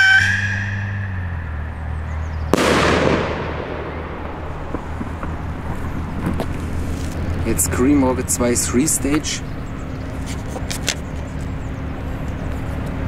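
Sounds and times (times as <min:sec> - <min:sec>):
firework rocket bang: 0:02.5 - 0:05.8.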